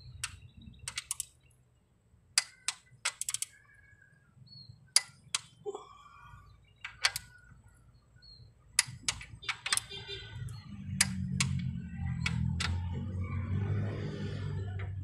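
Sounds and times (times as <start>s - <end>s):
socket wrench clicking: 0.0s - 1.3s, 2.4s - 3.6s, 4.9s - 5.6s, 6.8s - 7.3s, 8.8s - 9.9s, 10.9s - 12.9s.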